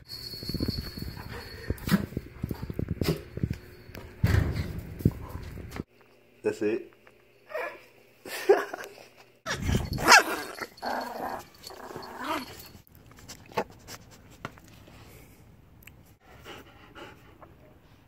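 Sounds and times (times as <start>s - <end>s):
dogs growling and crying: 9.5s - 12.8s.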